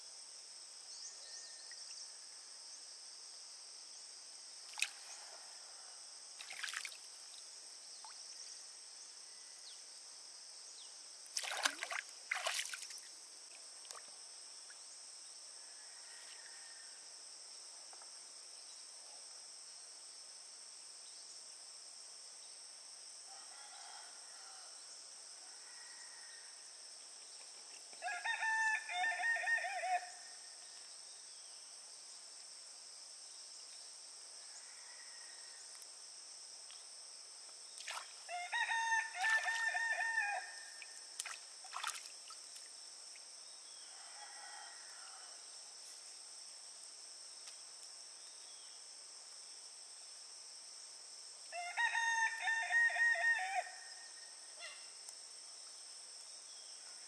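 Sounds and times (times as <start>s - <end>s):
rooster crowing: 23.3s - 24.8s, 28.0s - 30.2s, 38.3s - 40.8s, 43.8s - 45.4s, 51.5s - 54.0s.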